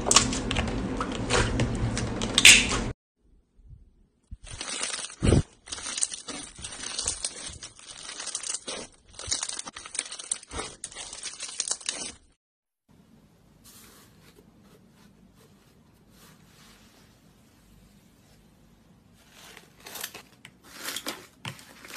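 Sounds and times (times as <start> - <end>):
slime squelch: 4.3 - 12.3
bead slime crackling: 4.4 - 12.2.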